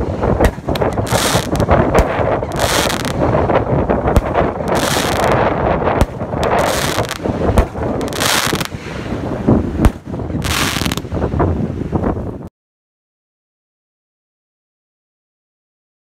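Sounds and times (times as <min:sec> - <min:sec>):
fireworks hiss: 0:00.0 - 0:11.1
fireworks bangs: 0:00.0 - 0:11.2
wind on microphone: 0:00.0 - 0:12.5.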